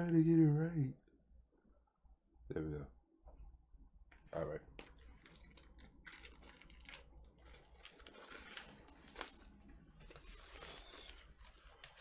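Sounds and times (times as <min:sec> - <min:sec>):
plastic wrap crinkling and tearing: 0:05.0 - 0:12.0.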